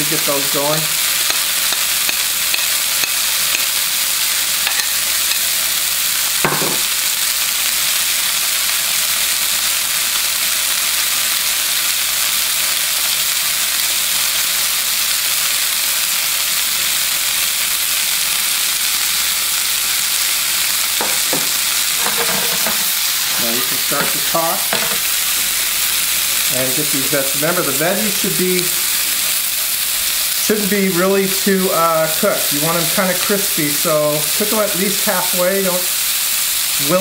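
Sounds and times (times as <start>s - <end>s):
food sizzling in a frying pan: 0.0s - 37.0s
tongs moving food: 21.1s - 26.3s.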